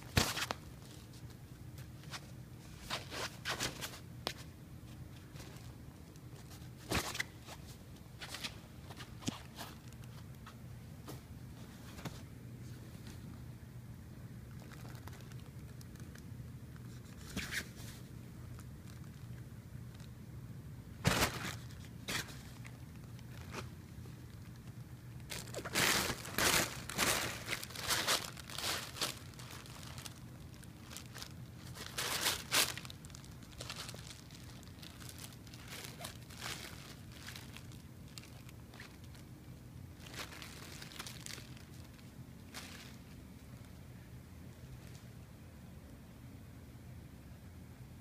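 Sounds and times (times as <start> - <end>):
fabric tunnel crinkling and rustling: 14.5 - 16.2, 21.0 - 43.8.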